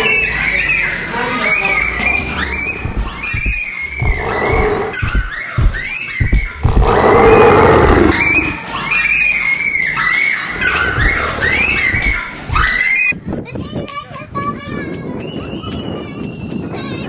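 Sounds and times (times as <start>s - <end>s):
children shrieking: 2.3s - 13.1s
low thudding footfalls: 2.8s - 7.3s
dinosaur roar: 4.0s - 5.0s, 6.6s - 8.6s.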